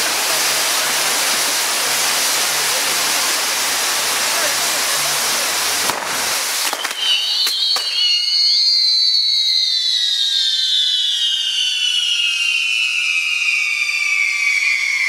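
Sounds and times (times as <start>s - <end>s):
firework cracks: 0.0s - 9.5s
fireworks sparks hissing: 0.0s - 15.0s
high falling whistle: 6.6s - 15.0s.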